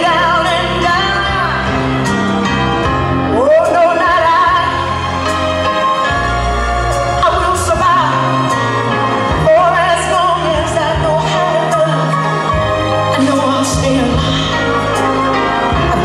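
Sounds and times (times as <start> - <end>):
person singing with vibrato: 0.0 - 2.2
band accompaniment: 0.0 - 16.0.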